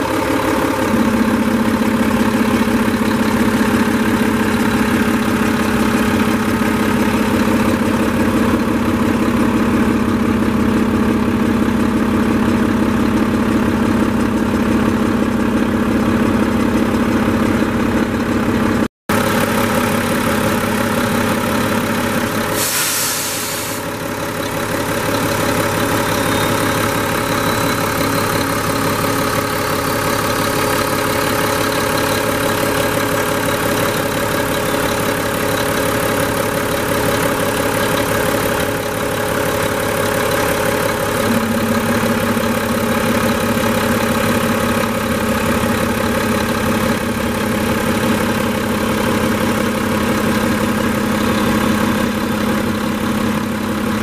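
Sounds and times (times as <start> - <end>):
diesel engine idling: 0.0 - 54.0
short hiss: 22.5 - 23.9.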